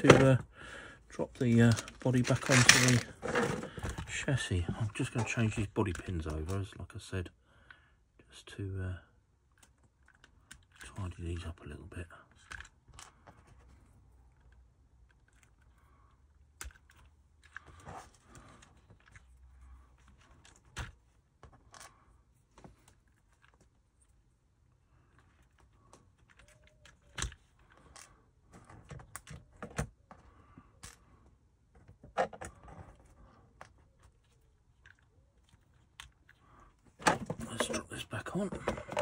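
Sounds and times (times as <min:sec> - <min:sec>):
small parts clicking and tapping: 0:01.4 - 0:03.7, 0:09.4 - 0:11.7, 0:12.3 - 0:37.0.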